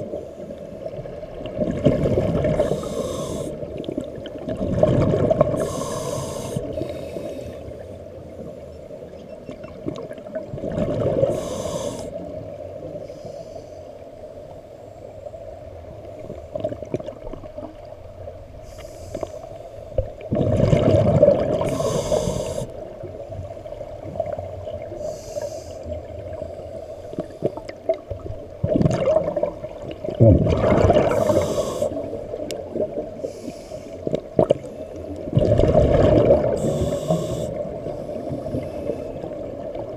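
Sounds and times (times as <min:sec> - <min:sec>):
muffled underwater rumble: 0:00.0 - 0:39.9
exhaled bubbles gushing: 0:01.4 - 0:05.9, 0:09.6 - 0:11.5, 0:20.2 - 0:22.6, 0:27.9 - 0:33.2, 0:34.1 - 0:37.8
scuba regulator hissing inhalations: 0:02.6 - 0:03.7, 0:05.6 - 0:07.7, 0:11.2 - 0:12.2, 0:13.0 - 0:13.9, 0:18.6 - 0:19.8, 0:21.6 - 0:22.8, 0:25.0 - 0:26.0, 0:31.1 - 0:32.2, 0:33.2 - 0:34.1, 0:36.4 - 0:39.2.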